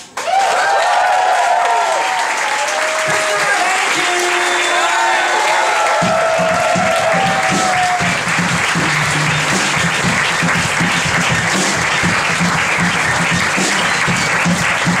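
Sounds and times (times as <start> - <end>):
audience applauding: 0.0 - 15.0
band music: 4.0 - 15.0.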